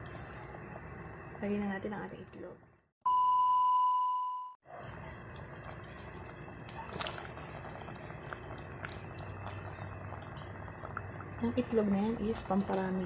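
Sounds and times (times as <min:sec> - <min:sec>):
pot simmering and bubbling: 0:00.0 - 0:02.8, 0:04.7 - 0:13.0
test-card beep: 0:03.1 - 0:04.6.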